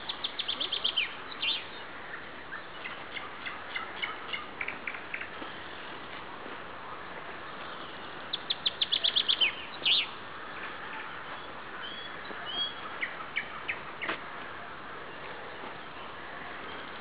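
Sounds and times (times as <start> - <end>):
nightingale singing: 0.0 - 5.4, 7.6 - 14.2.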